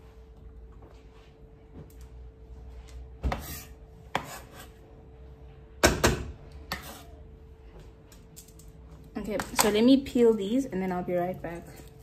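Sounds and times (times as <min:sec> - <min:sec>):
onion scraped into pan: 0:03.3 - 0:04.8, 0:06.6 - 0:07.2.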